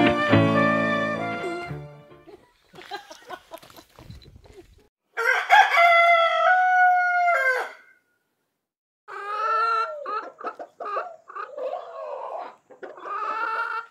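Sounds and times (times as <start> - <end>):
rooster crowing: 5.1 - 8.0
chicken clucking: 9.1 - 13.9.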